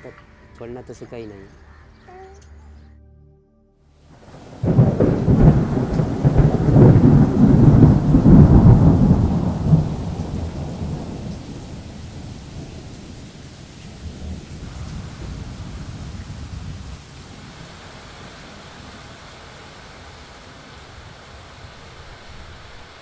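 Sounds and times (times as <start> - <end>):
rain hissing: 3.9 - 23.0
thunderclap with deep rumble: 4.1 - 20.9.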